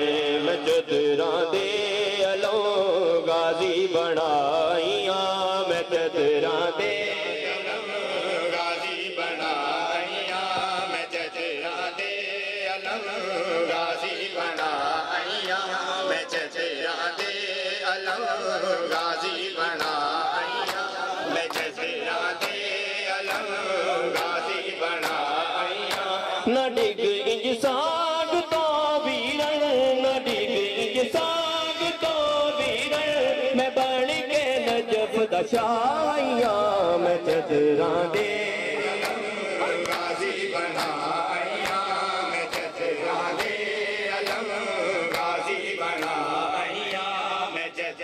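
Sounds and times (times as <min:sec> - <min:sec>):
men chanting: 0:00.0 - 0:48.0
hands slapping chests: 0:18.9 - 0:26.2, 0:37.2 - 0:47.1.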